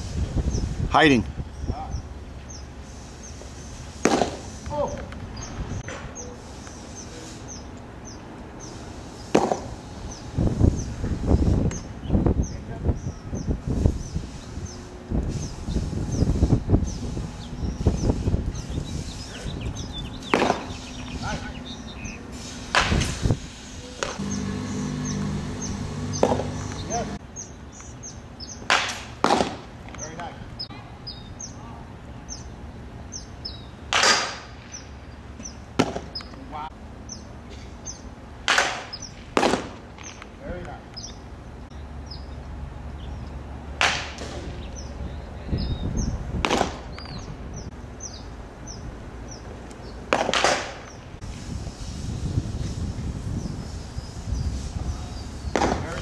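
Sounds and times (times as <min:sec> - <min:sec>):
bird chirping: 0:01.4 - 0:03.8, 0:10.0 - 0:22.3, 0:23.8 - 0:28.7, 0:30.6 - 0:31.6, 0:32.2 - 0:33.8, 0:40.9 - 0:43.4, 0:44.5 - 0:46.2, 0:46.9 - 0:50.0
low steady hum: 0:24.1 - 0:27.2.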